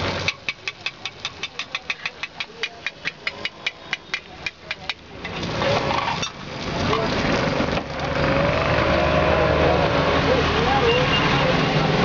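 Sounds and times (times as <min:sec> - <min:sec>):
metal spatula tapping iron pan: 0:00.2 - 0:05.0
people talking: 0:01.4 - 0:05.0, 0:06.7 - 0:07.4, 0:09.6 - 0:12.0.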